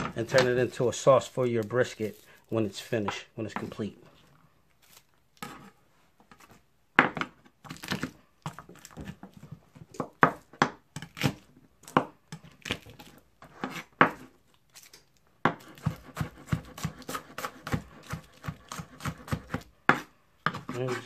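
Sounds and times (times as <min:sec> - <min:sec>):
knife crushing garlic on board: 0:15.5 - 0:21.0.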